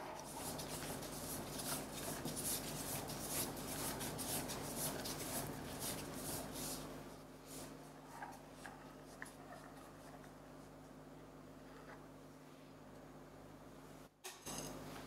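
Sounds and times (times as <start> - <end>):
spatula scraping cream: 0.0 - 10.4.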